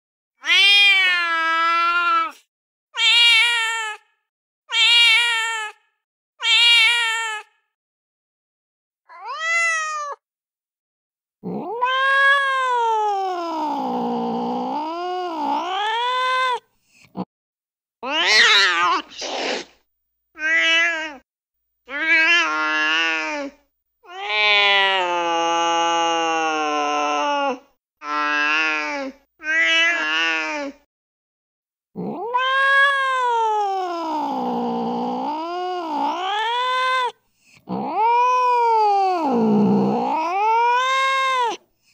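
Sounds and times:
recorded cat meows and yowls: 0.4 - 4.1, 4.7 - 7.6, 9.1 - 10.2, 11.4 - 16.7, 18.0 - 19.2, 20.3 - 21.2, 21.9 - 30.8, 32.0 - 41.6.

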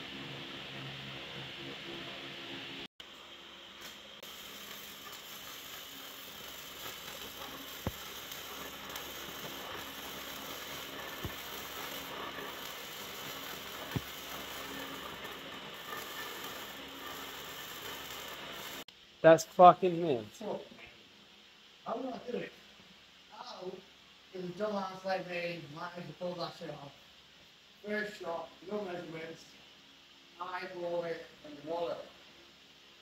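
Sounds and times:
welding arc crackling hiss: 0.0 - 20.6
sharp welding pops: 3.7 - 18.9.

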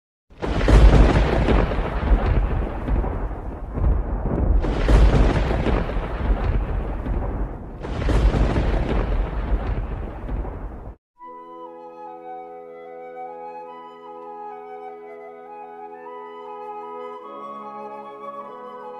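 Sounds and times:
thunder rumbling and cracking: 0.3 - 11.0.

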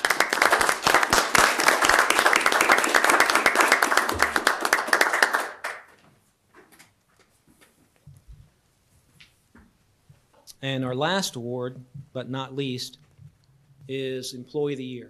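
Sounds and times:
people clapping: 0.0 - 6.0.

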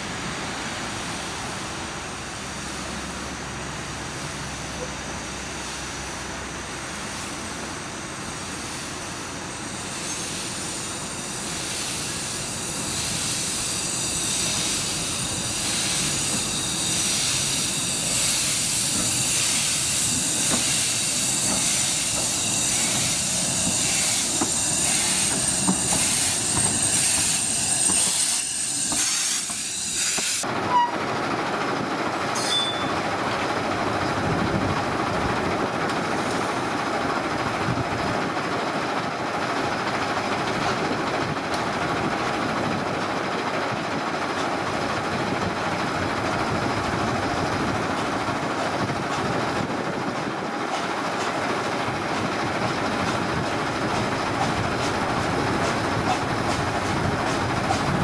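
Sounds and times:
distant rail yard noise: 0.0 - 58.0
steam locomotive hissing: 4.1 - 30.9, 39.7 - 58.0.

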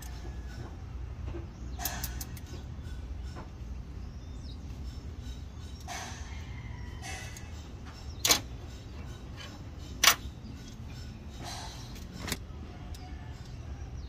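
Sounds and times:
metal tool clinking on engine: 1.6 - 3.4, 4.3 - 13.6.

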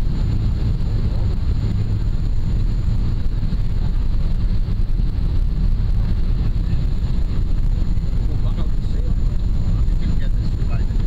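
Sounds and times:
jet engine cabin rumble: 0.0 - 11.0.

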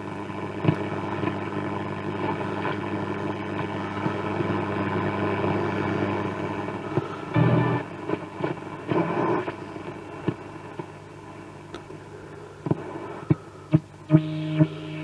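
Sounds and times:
radio stations and hiss while tuning: 0.0 - 15.0
steady radio tone: 2.2 - 10.3, 12.1 - 15.0.

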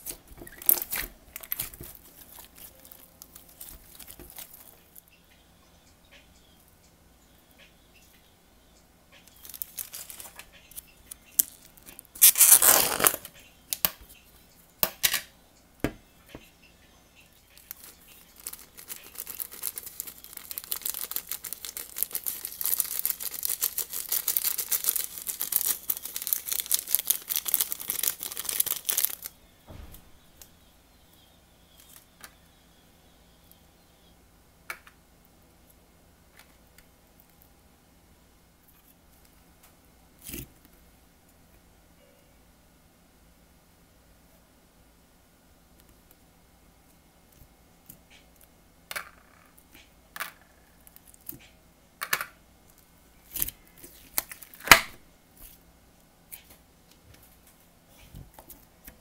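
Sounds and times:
plastic bag crinkling: 0.4 - 4.8, 9.3 - 10.4, 11.4 - 13.3, 17.6 - 29.3
plastic bag ripping: 12.2 - 13.3, 17.7 - 29.3
sequins rustling: 17.5 - 29.3.

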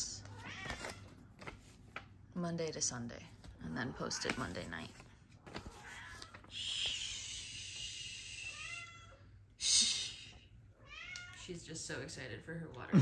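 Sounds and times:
cat meowing: 0.2 - 1.1, 5.6 - 6.5, 8.4 - 9.3, 10.8 - 11.5.

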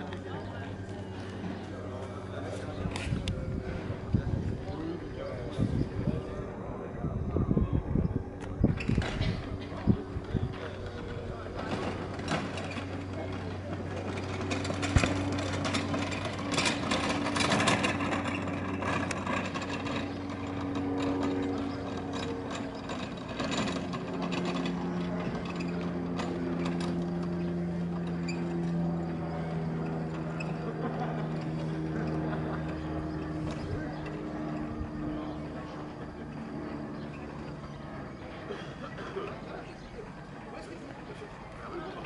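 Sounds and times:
engine hum: 0.0 - 42.0
voices: 0.0 - 42.0.

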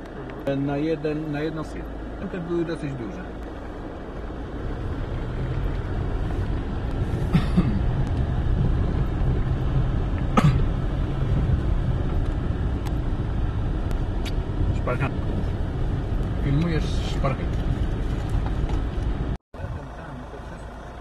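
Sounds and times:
car engine and tyres rumbling: 0.0 - 21.0.

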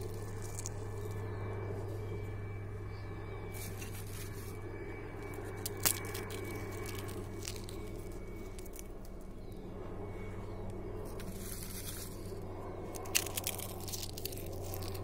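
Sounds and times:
eggshells crackling: 0.0 - 1.2, 5.2 - 9.0, 11.2 - 15.0
sharp eggshell crack: 0.0 - 1.2, 5.3 - 8.9, 12.9 - 15.0
steady low hum: 0.0 - 15.0.

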